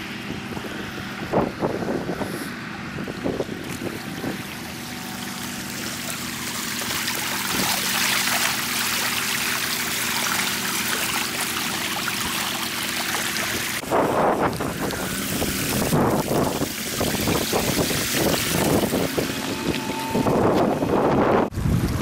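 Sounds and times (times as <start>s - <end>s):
wind buffeting microphone: 0.0s - 5.7s, 13.5s - 22.0s
floodwater rushing and swirling: 0.0s - 22.0s
low engine hum: 0.0s - 22.0s.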